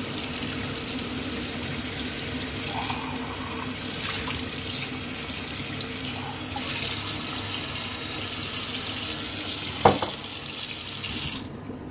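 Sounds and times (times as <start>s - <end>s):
tap water splashing into mug: 9.8s - 10.3s
sharp knock: 9.9s - 10.2s.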